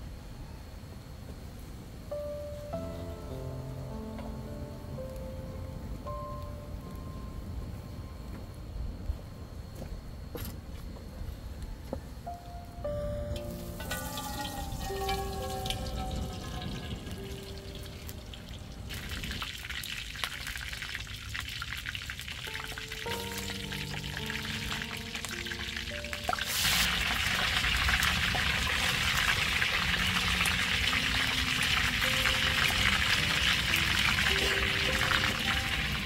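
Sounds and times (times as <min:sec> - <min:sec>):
soft music with plucked notes: 0:02.1 - 0:07.9, 0:12.2 - 0:18.9, 0:22.5 - 0:36.0
fish sizzling in hot oil: 0:13.4 - 0:36.0.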